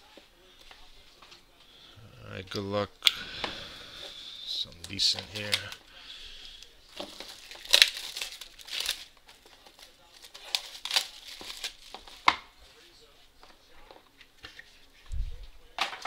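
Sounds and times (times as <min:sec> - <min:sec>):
plastic shrink wrap crackling: 0:04.7 - 0:05.8, 0:06.6 - 0:12.5.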